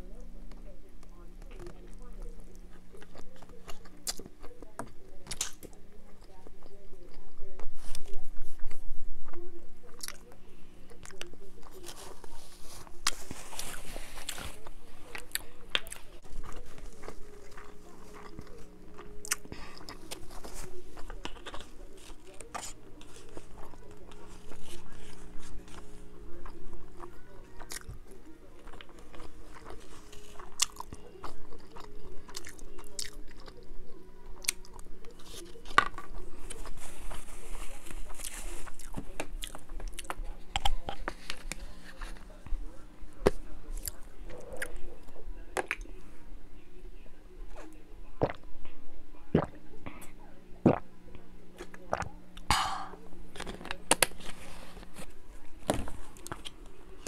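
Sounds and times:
child chewing food: 0.0s - 46.3s, 47.4s - 57.0s
person swallowing water: 48.2s - 48.4s.

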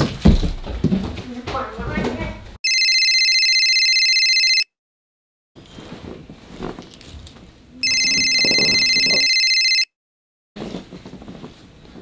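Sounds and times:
electronic telephone ring: 2.6s - 4.7s, 7.8s - 9.9s
rustling on a bed: 10.6s - 12.0s.

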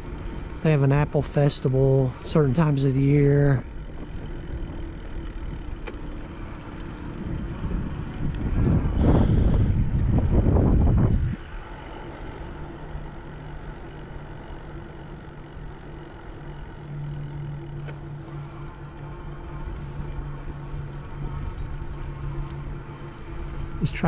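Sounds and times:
steady low hum: 0.0s - 24.0s
wind rumble on microphone: 6.6s - 12.0s.

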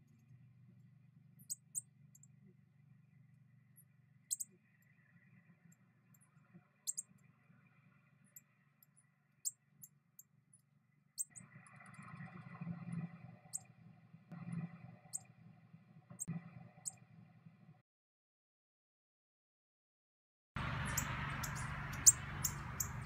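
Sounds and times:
faint low hum: 0.0s - 17.8s
outdoor background noise: 0.0s - 17.8s, 20.6s - 23.0s.

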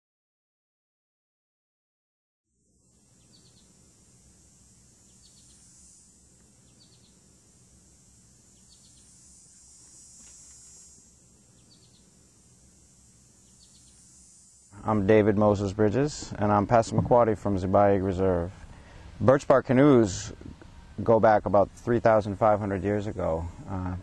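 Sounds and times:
insects chorus: 2.6s - 24.0s
small bird chirping: 3.1s - 3.8s, 4.7s - 7.3s, 8.3s - 12.2s, 13.2s - 14.9s.

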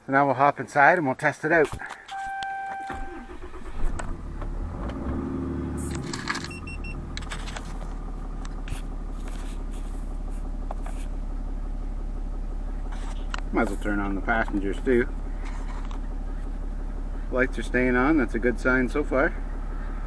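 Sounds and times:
engine cranking and idling: 1.8s - 20.0s
dash chime beeps: 2.1s - 3.1s.

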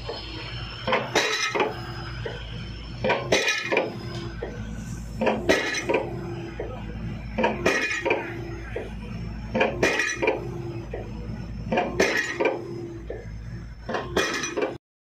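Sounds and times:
rig engine drone: 0.0s - 14.8s
pile hammer metallic clanks: 3.0s - 4.6s, 5.2s - 11.1s, 11.7s - 13.2s, 13.9s - 14.8s.

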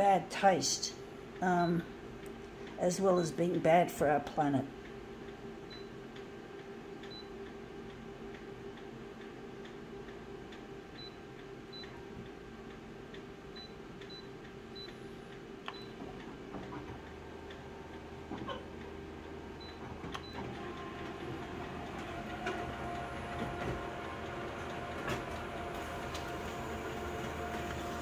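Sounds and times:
copier scanning motor hum: 4.2s - 28.0s
photocopier humming: 12.9s - 28.0s
copier clicks: 19.7s - 28.0s.

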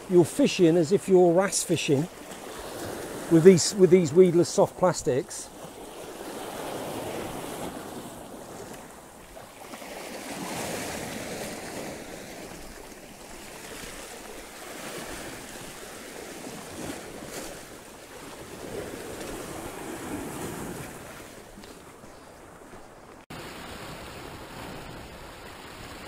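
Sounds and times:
waves washing over rocks: 0.0s - 21.8s.

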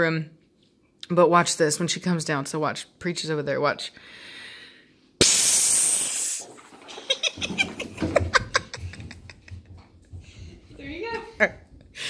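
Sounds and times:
person hissing like a cat: 5.2s - 6.4s.

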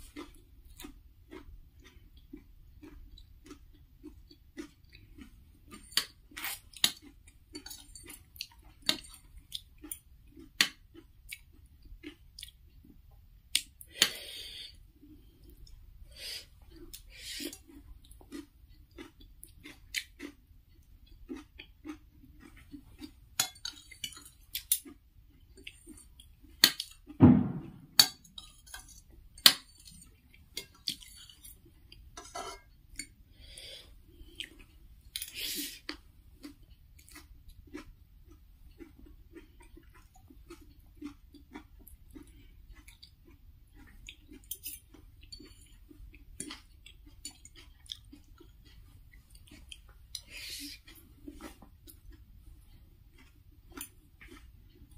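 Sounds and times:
chewing noodles: 0.0s - 27.2s, 28.0s - 54.9s
loud thump: 27.2s - 28.0s
cutlery clinking on a plate: 32.2s - 32.7s.

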